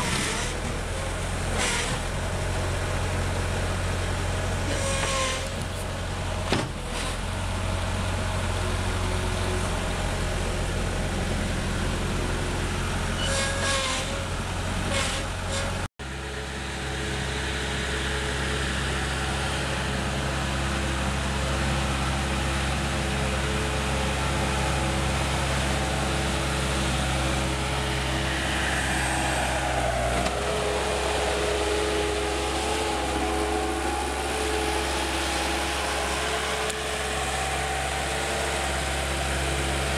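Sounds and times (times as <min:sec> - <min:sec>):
loader diesel engine running: 0:00.0 - 0:39.9.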